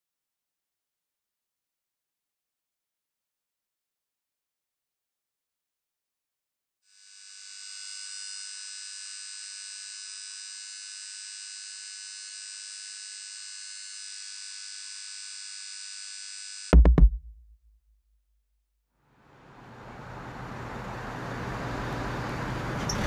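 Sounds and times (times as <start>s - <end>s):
deep bass boom: 16.8s - 17.9s.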